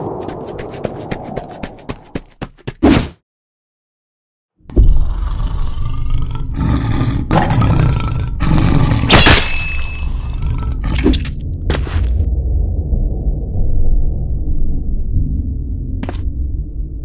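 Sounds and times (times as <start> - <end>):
cartoon werewolf roaring and growling: 4.7 - 9.2, 10.0 - 11.4.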